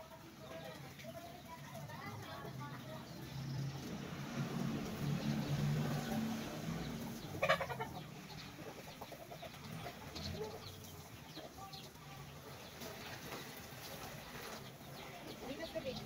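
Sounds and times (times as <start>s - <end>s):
chickens clucking: 4.6s - 16.0s.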